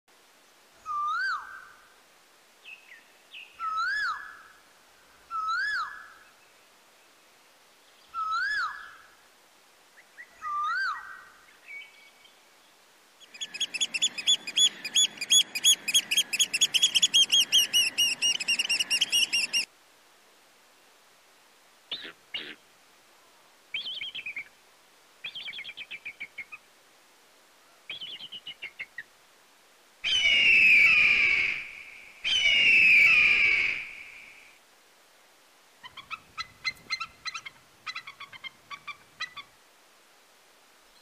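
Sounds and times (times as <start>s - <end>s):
swooping whistled calls: 0.8s - 1.7s, 3.6s - 4.4s, 5.3s - 6.1s, 8.1s - 9.0s, 10.1s - 11.9s, 13.2s - 19.7s, 30.0s - 34.6s
rapid high chirps: 13.4s - 19.7s.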